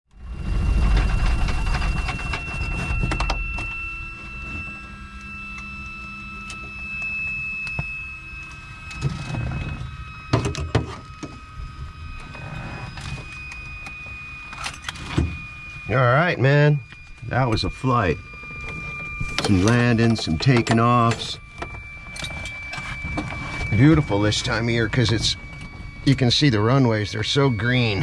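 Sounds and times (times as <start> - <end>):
low rumble: 0.1 - 4.1
faint high whine: 0.1 - 28.0.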